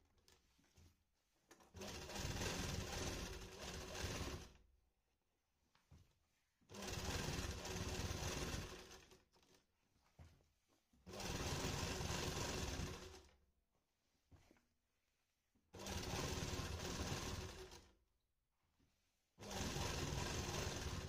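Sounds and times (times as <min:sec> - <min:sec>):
sewing machine stitching: 0:01.6 - 0:04.6, 0:06.7 - 0:09.6, 0:11.0 - 0:13.4, 0:15.7 - 0:18.0, 0:19.4 - 0:21.0.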